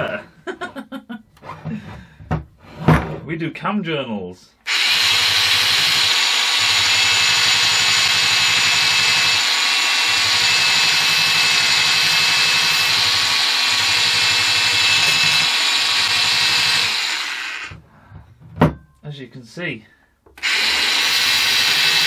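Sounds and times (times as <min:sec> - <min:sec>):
belt sander whining: 0:04.7 - 0:17.8, 0:20.4 - 0:22.0.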